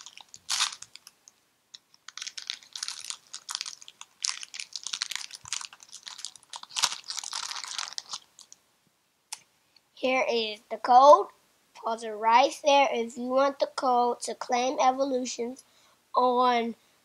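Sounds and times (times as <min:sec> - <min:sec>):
foil crackling and rustling: 0:00.0 - 0:01.1, 0:02.0 - 0:08.5
foil wrapper tearing: 0:00.0 - 0:01.2, 0:01.8 - 0:08.6.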